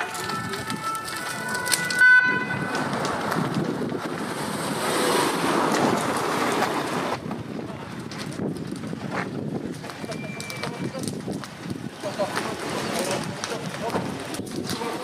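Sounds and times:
wind noise on microphone: 0.0s - 15.0s
van driving past: 2.8s - 7.2s.

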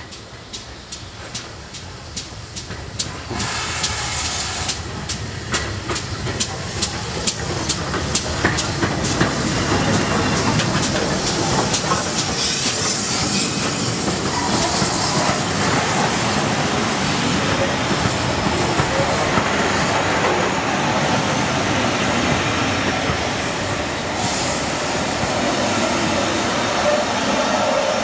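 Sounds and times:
steam locomotive ticking: 0.0s - 21.0s
carriages rumbling on rails: 0.0s - 28.0s
hissing steam: 0.0s - 28.0s.

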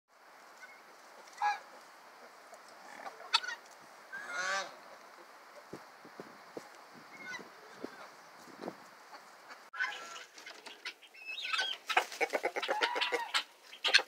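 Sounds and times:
guineafowl calling: 0.6s - 4.9s, 7.1s - 8.2s, 9.1s - 14.0s.

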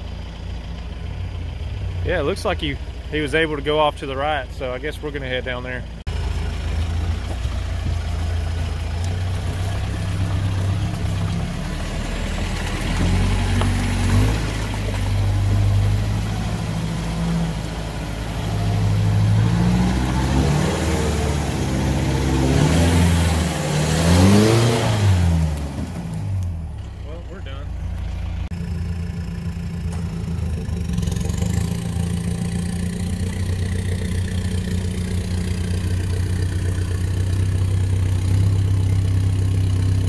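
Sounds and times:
diesel engine revving: 0.0s - 40.0s.

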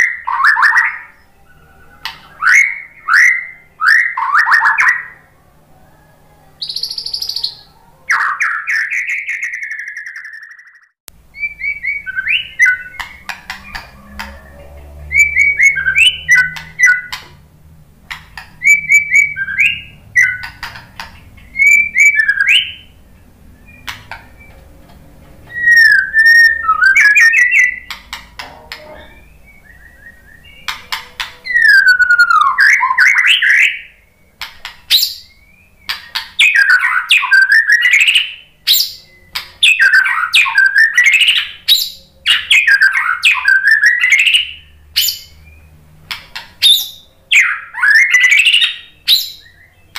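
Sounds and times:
bird singing whistled phrases: 0.0s - 5.2s, 6.6s - 17.2s, 18.6s - 20.7s, 21.4s - 24.6s, 25.5s - 28.0s, 28.8s - 45.7s, 46.6s - 49.9s
sharp bird clicks: 12.1s - 14.4s, 15.3s - 17.4s, 18.0s - 22.8s, 23.7s - 24.6s, 25.7s - 28.8s, 34.4s - 44.4s, 46.0s - 49.6s.

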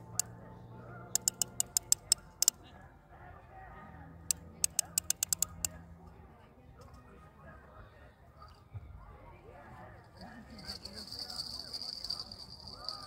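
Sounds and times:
fishing reel clicking: 1.2s - 2.5s, 4.6s - 5.7s.

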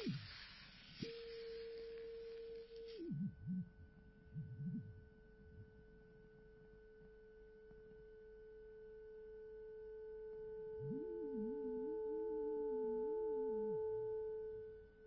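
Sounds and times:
steady pure tone: 0.0s - 15.0s
low wavering pitch glides: 10.5s - 14.5s.

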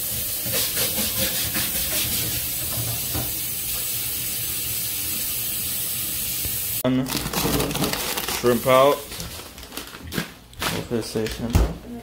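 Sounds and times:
garlic sizzling in hot oil: 0.0s - 6.8s.

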